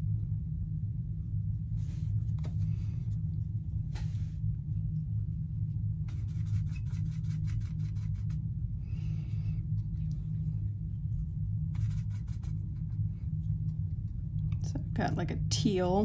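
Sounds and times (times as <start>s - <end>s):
steady low hum: 0.0s - 16.0s
brush scratchy rub: 6.1s - 8.4s, 11.7s - 13.1s.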